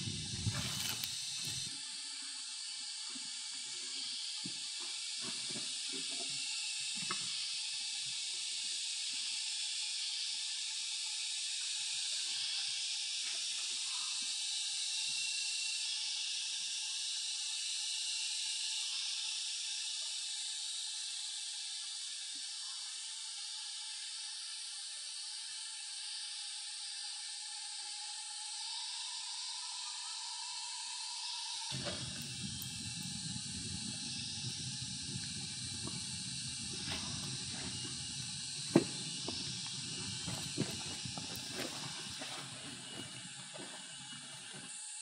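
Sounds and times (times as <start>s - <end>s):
forest insects droning: 0.0s - 45.0s.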